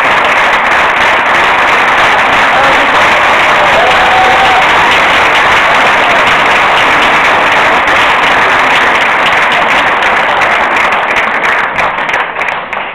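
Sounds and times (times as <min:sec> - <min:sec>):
audience applauding: 0:00.0 - 0:12.9.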